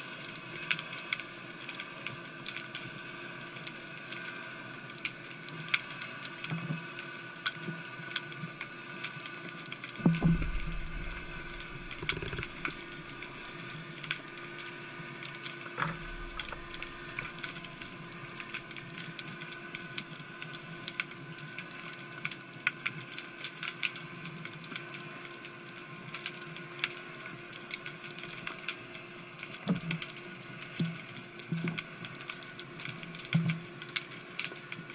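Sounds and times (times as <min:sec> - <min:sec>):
faint steady hum: 0:10.0 - 0:21.9.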